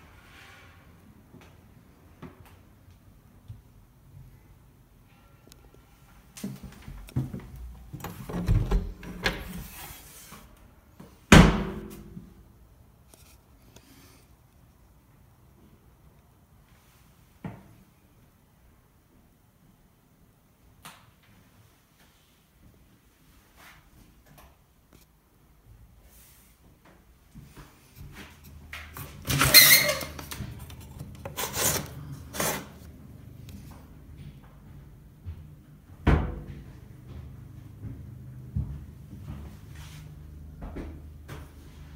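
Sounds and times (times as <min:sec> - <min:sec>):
door rattling and scraping: 0:29.0 - 0:32.6.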